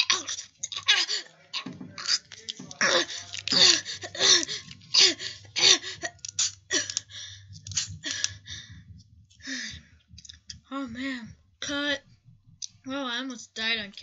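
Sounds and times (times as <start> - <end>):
person gasping breathily: 2.9 - 10.0.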